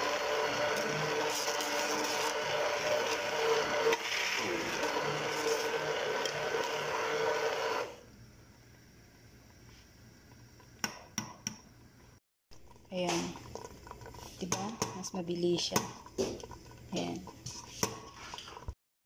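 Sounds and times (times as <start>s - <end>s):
hand blender motor whining: 0.0s - 8.0s.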